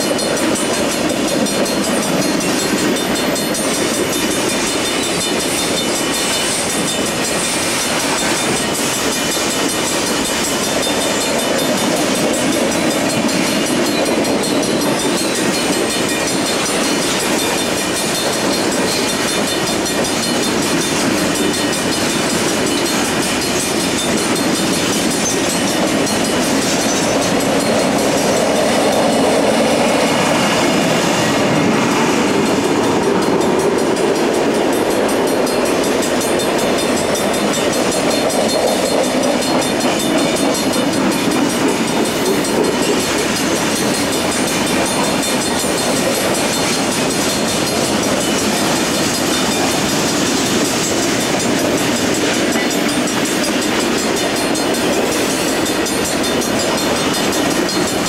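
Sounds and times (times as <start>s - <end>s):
freight train rolling past: 0.0s - 58.0s
steel wheels on rails: 0.0s - 58.0s.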